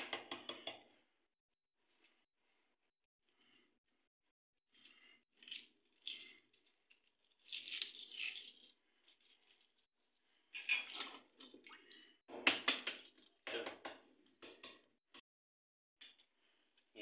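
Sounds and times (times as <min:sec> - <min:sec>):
egg shell crackling: 0:05.4 - 0:09.8.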